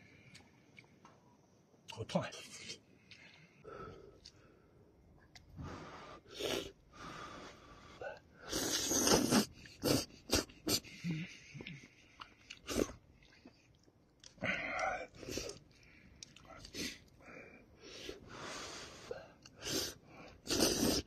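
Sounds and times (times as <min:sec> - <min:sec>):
man slurping noodles: 0:06.3 - 0:06.7, 0:08.4 - 0:11.9, 0:19.6 - 0:21.0
chewing clicks: 0:11.6 - 0:17.2.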